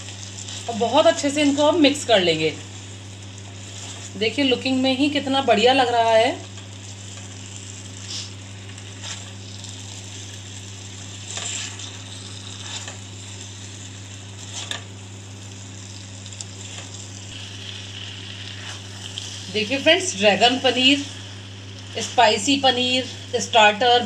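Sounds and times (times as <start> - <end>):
food sizzling in pan: 0.0 - 24.0
spoon scraping pan: 11.3 - 12.0.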